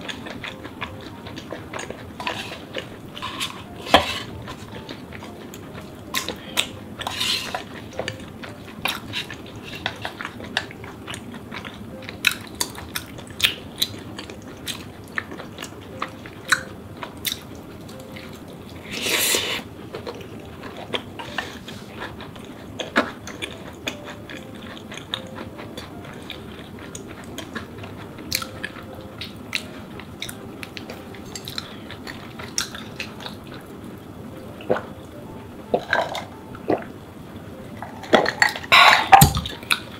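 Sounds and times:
chewing soft food: 0:00.0 - 0:36.9, 0:37.8 - 0:39.9.

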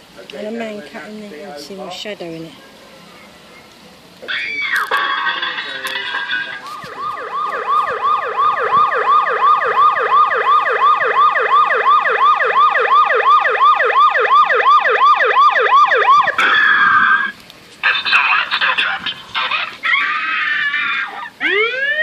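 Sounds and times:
fire engine siren wail: 0:04.2 - 0:17.4, 0:19.4 - 0:22.0.

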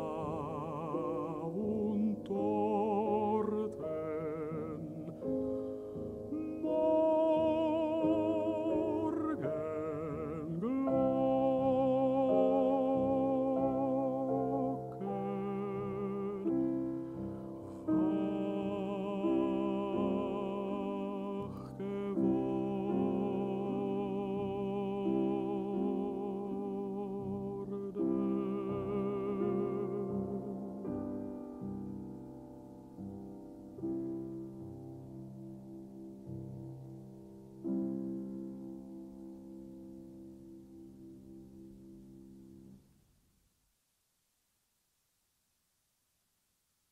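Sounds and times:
man singing art song: 0:00.0 - 0:31.6
piano accompaniment: 0:00.0 - 0:42.8.

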